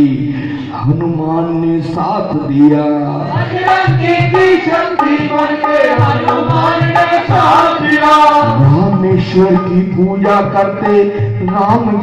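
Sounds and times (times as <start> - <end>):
hand drums beating: 3.3 - 12.0.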